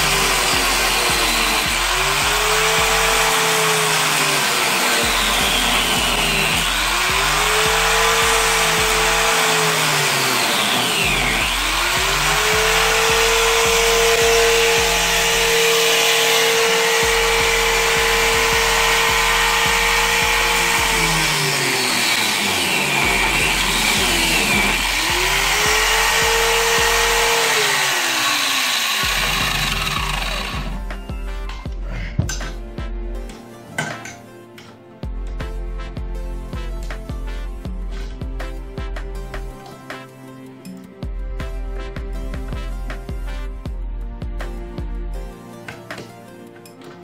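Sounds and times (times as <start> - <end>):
angle grinder grinding metal: 0.0 - 31.7.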